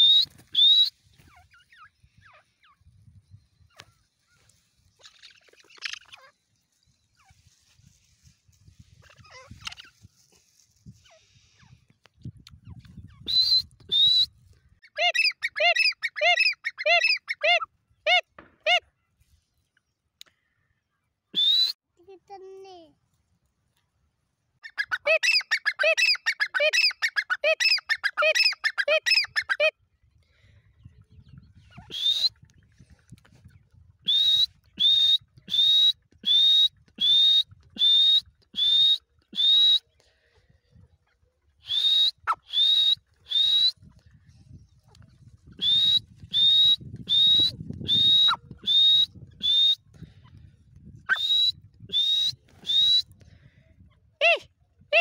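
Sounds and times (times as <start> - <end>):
bird rising whistled notes: 0.0 - 1.3, 45.4 - 49.9, 51.0 - 53.1.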